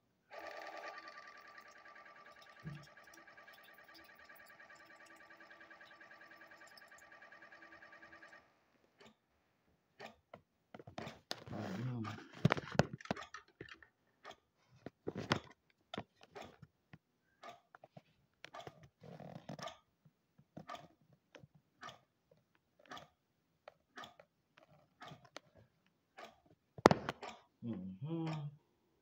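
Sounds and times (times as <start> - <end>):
phone handling clicks and taps: 26.8 - 27.4.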